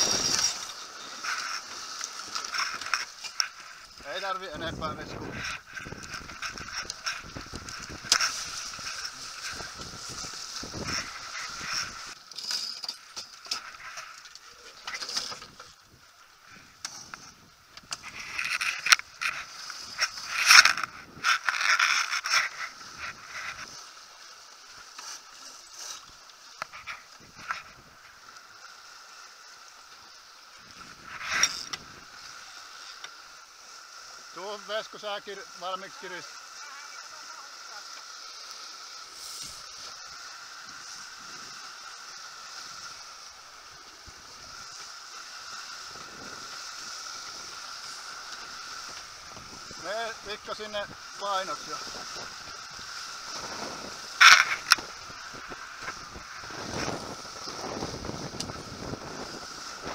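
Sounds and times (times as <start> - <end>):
clothing and gear rustling: 0.0 - 4.5, 5.2 - 15.8
water rushing along boat hulls: 0.0 - 59.9
wind: 0.0 - 59.9.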